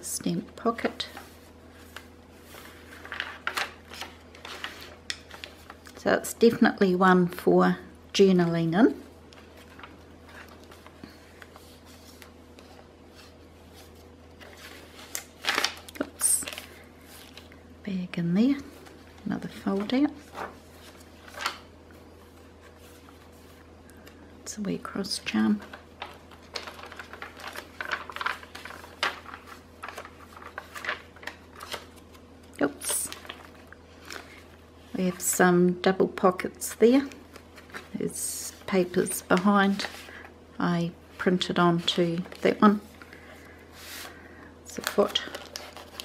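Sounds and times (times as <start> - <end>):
steady low hum: 0.0 - 46.0
pages rustling and ticking: 0.8 - 6.0, 9.3 - 17.6, 18.6 - 22.0, 25.3 - 34.6, 36.9 - 38.0, 44.7 - 46.0.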